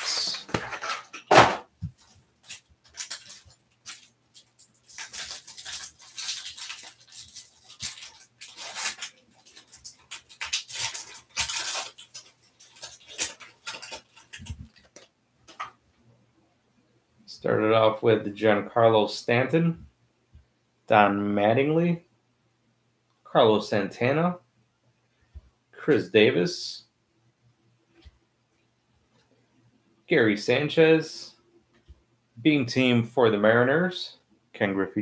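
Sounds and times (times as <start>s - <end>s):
foil wrapper crinkling: 2.0s - 15.7s
foil wrapper tearing: 2.4s - 15.1s.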